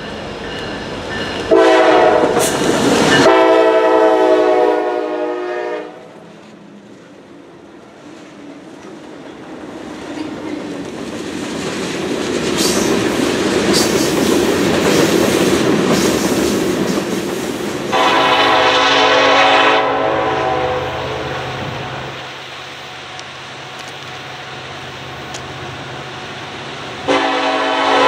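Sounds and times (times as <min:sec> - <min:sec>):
train wheels clattering on rails: 0:00.0 - 0:03.5, 0:08.2 - 0:18.6
locomotive air horn blast: 0:01.5 - 0:02.6, 0:03.2 - 0:06.1, 0:17.9 - 0:22.1, 0:27.0 - 0:28.0.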